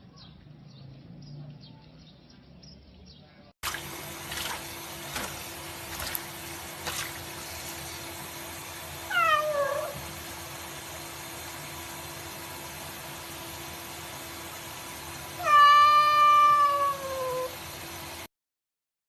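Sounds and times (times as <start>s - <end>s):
tap running into sink: 3.6s - 8.4s
cat meowing: 9.1s - 10.0s, 15.4s - 17.6s.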